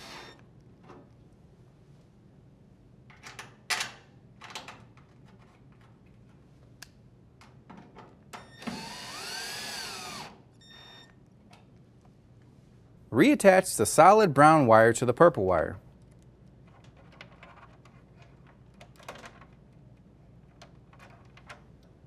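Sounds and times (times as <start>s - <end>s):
cordless drill whining: 0.0s - 0.4s, 8.5s - 10.4s.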